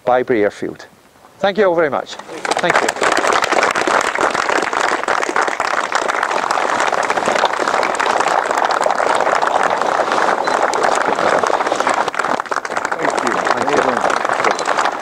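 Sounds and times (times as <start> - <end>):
crowd applauding: 2.2 - 15.0.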